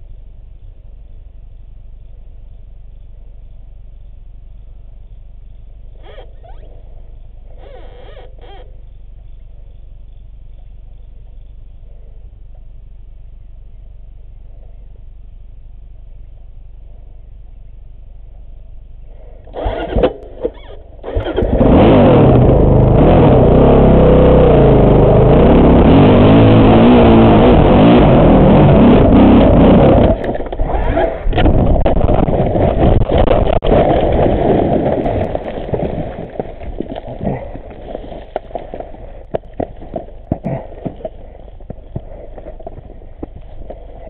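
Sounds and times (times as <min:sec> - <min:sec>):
dirt bike engine revving: 0:19.5 - 0:39.7.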